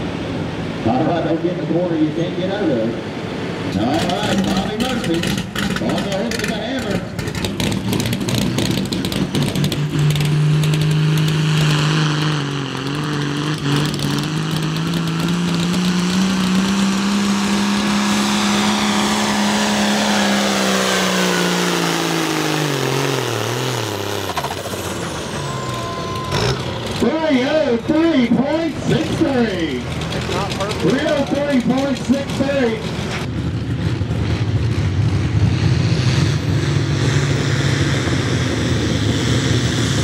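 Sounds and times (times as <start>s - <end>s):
tractor diesel engine at full throttle: 0.0s - 40.0s.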